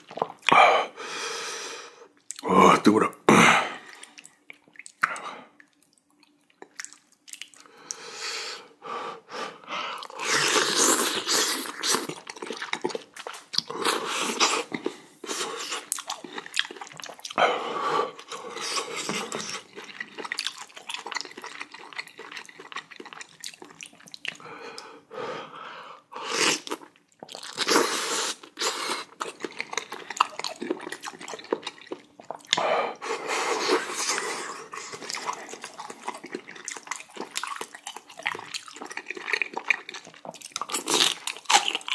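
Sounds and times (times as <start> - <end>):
chewing: 3.9 - 8.0, 10.0 - 17.4, 18.1 - 24.5, 26.5 - 41.9
wet slurping of noodles: 10.1 - 12.1.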